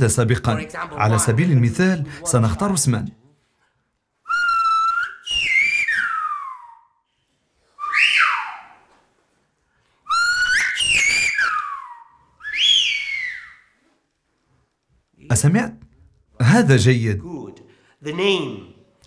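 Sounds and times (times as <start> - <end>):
man whistling with fingers: 4.2 - 7.1, 10.1 - 13.7.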